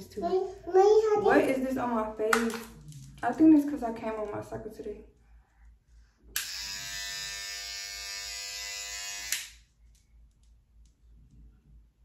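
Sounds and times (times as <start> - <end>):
electric toothbrush buzzing: 6.4 - 9.6.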